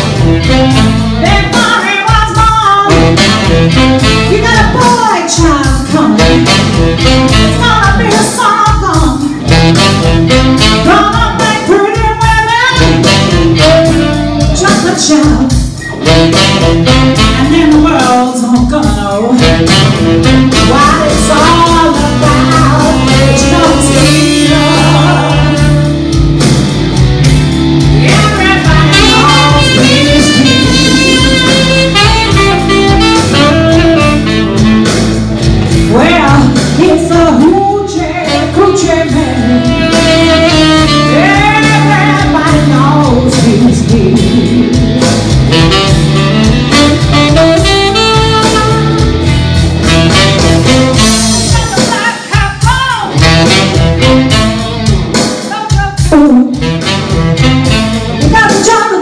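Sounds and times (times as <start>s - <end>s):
electric guitar: 0.0s - 59.0s
saxophone: 0.0s - 59.0s
woman singing: 1.2s - 3.2s, 4.1s - 6.6s, 7.3s - 9.6s, 10.6s - 15.6s, 17.1s - 19.8s, 20.5s - 25.9s, 28.0s - 31.6s, 35.9s - 44.8s, 51.0s - 53.2s, 55.4s - 56.7s, 58.2s - 59.0s.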